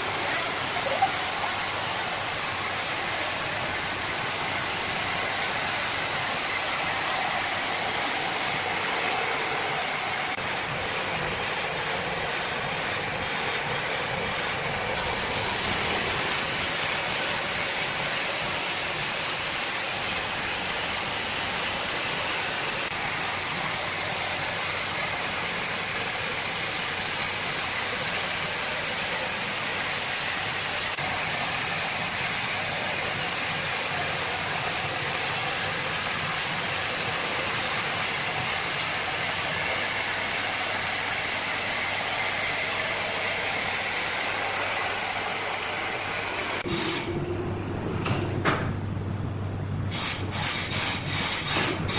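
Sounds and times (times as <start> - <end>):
band saw blade cutting wood: 50.0 - 51.9.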